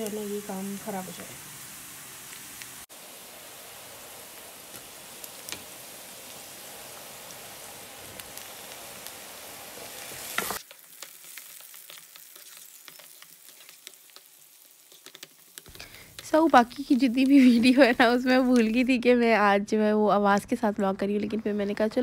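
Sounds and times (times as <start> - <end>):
vegetables sizzling in oil: 0.0 - 20.0.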